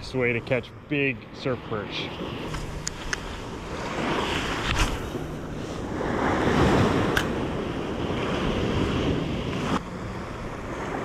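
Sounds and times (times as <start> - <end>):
ocean surf on sandy beach: 0.0 - 11.0
wind buffeting microphone: 2.2 - 11.0
sharp click: 7.1 - 7.3.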